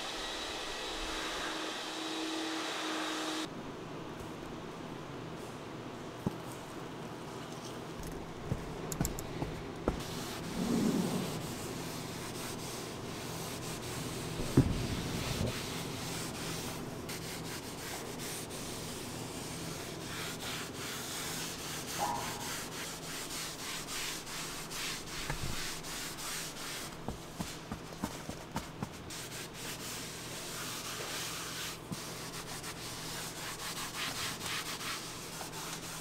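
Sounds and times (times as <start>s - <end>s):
foam pad rubbing leather: 9.5s - 36.0s.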